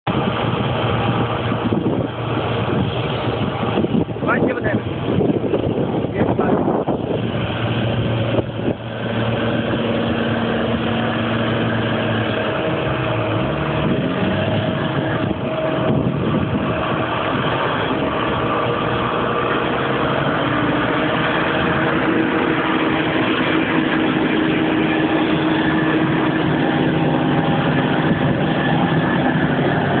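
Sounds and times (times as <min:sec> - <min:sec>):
tractor diesel engines running hard: 0:00.0 - 0:30.0.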